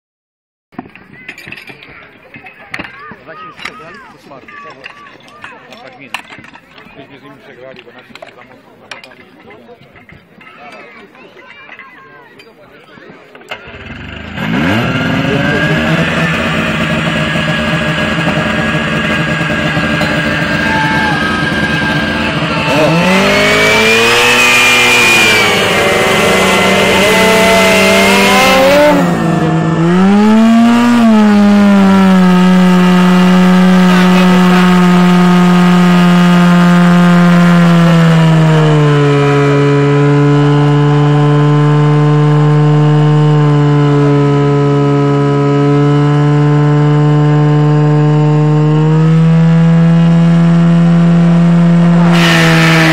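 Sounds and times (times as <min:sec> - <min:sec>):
pump engine running and revving: 0:13.5 - 0:52.9.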